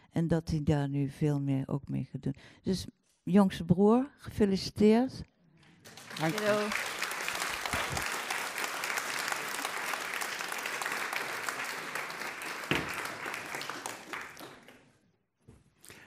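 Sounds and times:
audience applause: 0:05.8 - 0:15.0.

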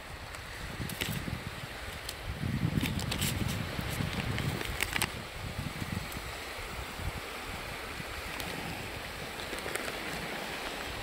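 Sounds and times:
surf washing: 0:00.0 - 0:11.0
wind buffeting microphone: 0:00.0 - 0:11.0.

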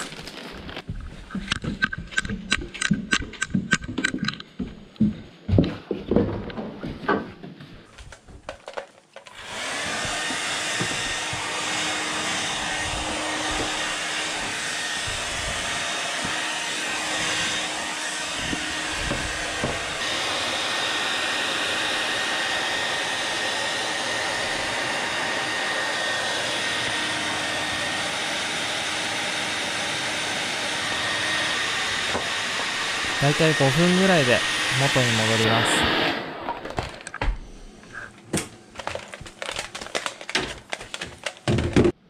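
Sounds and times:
hair dryer running: 0:09.4 - 0:37.7.

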